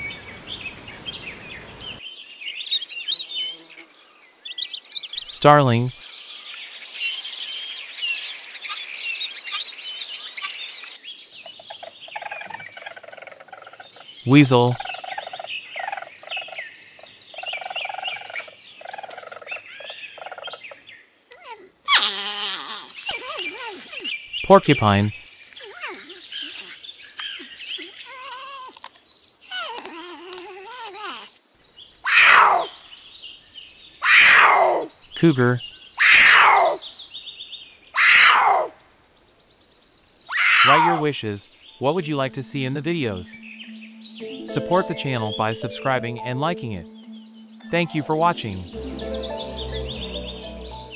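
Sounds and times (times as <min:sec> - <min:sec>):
lower bird chatter: 0:22.9 - 0:42.0
porcupine whining cries: 0:27.8 - 0:28.8, 0:29.5 - 0:31.4, 0:32.1 - 0:32.7, 0:34.0 - 0:34.9, 0:36.0 - 0:36.8, 0:38.0 - 0:38.7, 0:40.3 - 0:41.0
rapid high bird trill: 0:32.0 - 0:32.8, 0:40.3 - 0:41.2
cougar hissing: 0:32.1 - 0:32.7, 0:34.0 - 0:34.9, 0:36.0 - 0:36.8, 0:38.0 - 0:38.7, 0:40.3 - 0:41.0.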